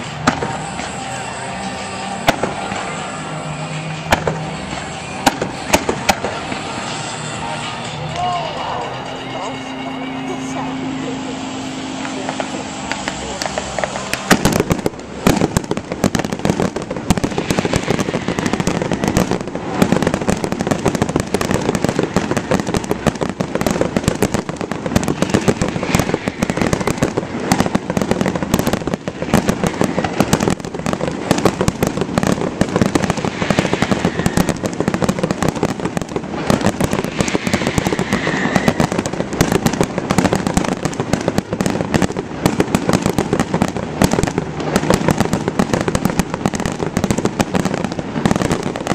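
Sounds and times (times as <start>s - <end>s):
fireworks crackling and popping: 0.0s - 48.9s.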